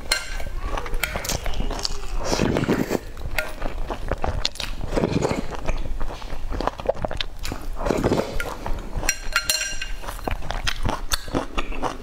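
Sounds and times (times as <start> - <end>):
chewing with wet mouth clicks: 0.3 - 12.0
slurping soup from spoon: 1.4 - 3.2, 4.0 - 6.3, 6.9 - 9.1.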